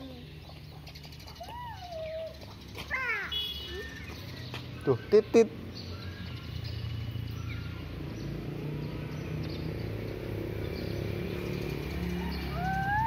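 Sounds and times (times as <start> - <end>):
animal call rising and falling: 12.1 - 13.0.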